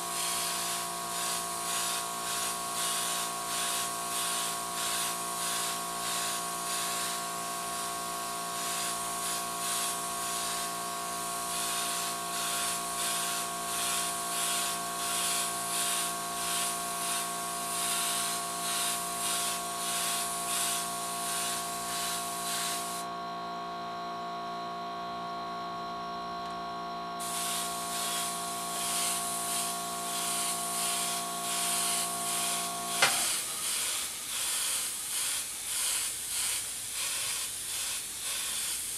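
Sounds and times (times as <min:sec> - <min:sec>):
airbrush hiss: 0:00.0 - 0:08.0, 0:08.6 - 0:23.0, 0:27.2 - 0:38.9
machine hum: 0:20.2 - 0:33.7.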